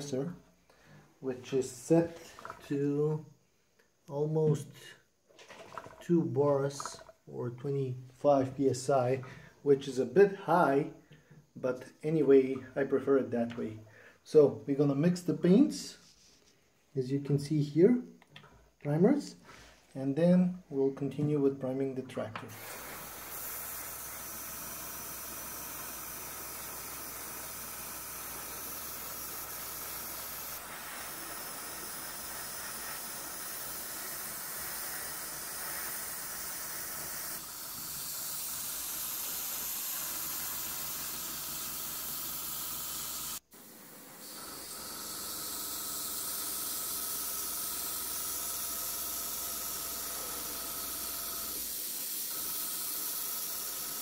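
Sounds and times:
airbrush hissing: 22.5s - 53.8s.

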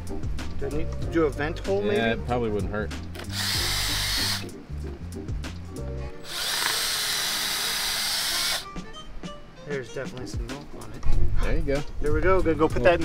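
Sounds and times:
background music with low beat: 0.0s - 13.0s
cordless drill boring: 3.2s - 4.5s, 6.2s - 8.6s.

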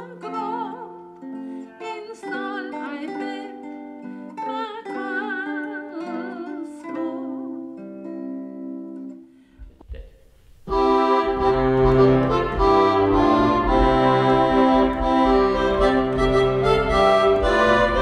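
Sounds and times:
digital piano playing organ-like notes: 10.7s - 18.0s
steady bass line: 10.7s - 18.0s.

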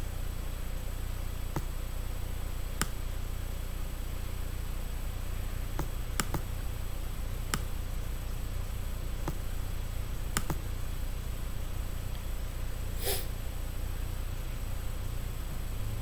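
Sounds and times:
steady low hum: 0.0s - 16.0s
computer mouse clicks: 1.5s - 1.7s, 2.8s - 3.0s, 5.8s - 6.5s, 10.3s - 10.6s.

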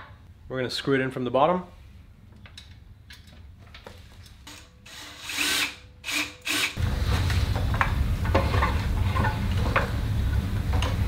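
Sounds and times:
power screwdriver whirring: 4.9s - 6.8s.

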